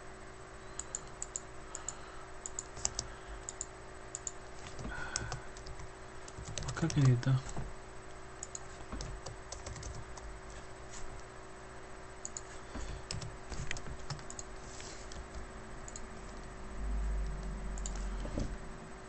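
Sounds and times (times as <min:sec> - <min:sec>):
computer keyboard typing: 0:00.8 - 0:07.6, 0:08.4 - 0:10.3, 0:12.2 - 0:14.5.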